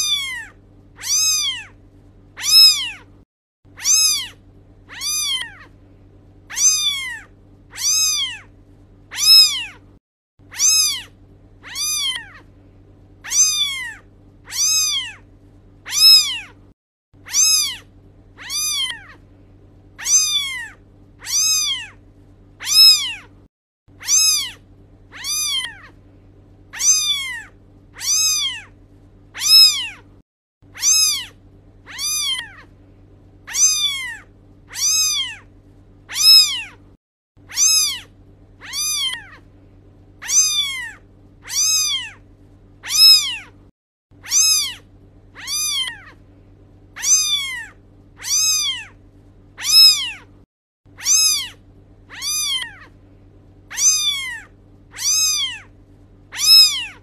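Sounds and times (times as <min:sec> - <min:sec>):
kitten meowing: 0:00.0 - 0:01.8, 0:02.4 - 0:03.1, 0:03.8 - 0:05.7, 0:06.5 - 0:08.5, 0:09.1 - 0:09.8, 0:10.5 - 0:12.5, 0:13.2 - 0:15.2, 0:15.9 - 0:16.6, 0:17.2 - 0:19.2, 0:20.0 - 0:22.0, 0:22.6 - 0:23.3, 0:24.0 - 0:26.0, 0:26.7 - 0:28.7, 0:29.4 - 0:30.0, 0:30.8 - 0:32.7, 0:33.5 - 0:35.5, 0:36.1 - 0:36.8, 0:37.5 - 0:39.4, 0:40.2 - 0:42.2, 0:42.8 - 0:43.6, 0:44.2 - 0:44.8, 0:45.4 - 0:46.2, 0:47.0 - 0:49.0, 0:49.6 - 0:50.3, 0:51.0 - 0:53.0, 0:53.7 - 0:55.7, 0:56.3 - 0:57.0
faint steady hum: 0:00.0 - 0:57.0.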